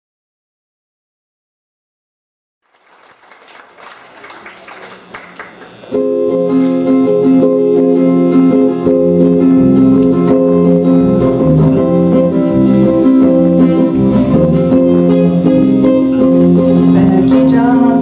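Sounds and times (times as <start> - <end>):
acoustic guitar strumming: 5.8 - 18.0
electric bass guitar: 5.9 - 18.0.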